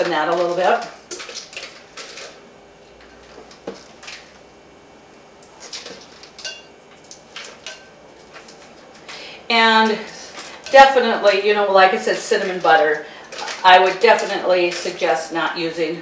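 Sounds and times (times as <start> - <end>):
knife clinking on glass bowl: 6.4 - 6.8, 7.6 - 8.0.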